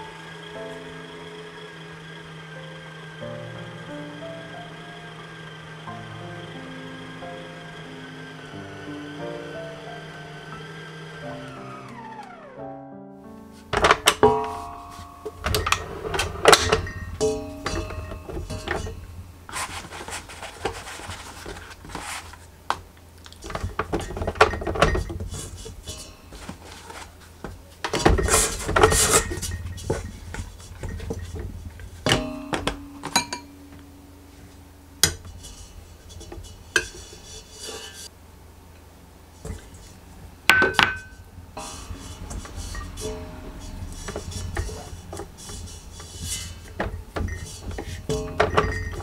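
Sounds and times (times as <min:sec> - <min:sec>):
dough scraping and rustling: 0:13.5 - 0:33.4, 0:34.3 - 0:38.1, 0:39.3 - 0:49.0
clinks and knocks on metal bowl: 0:15.4 - 0:19.0, 0:27.9 - 0:33.6, 0:40.5 - 0:49.0.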